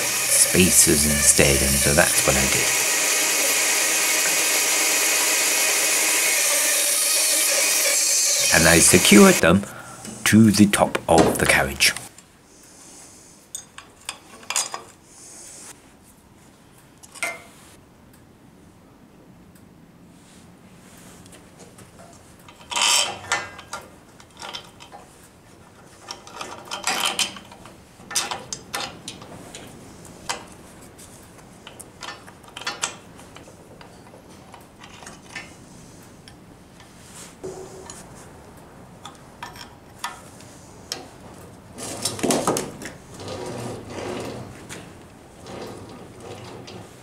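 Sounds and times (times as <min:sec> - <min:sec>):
steel parts clinking: 0:22.5 - 0:25.0.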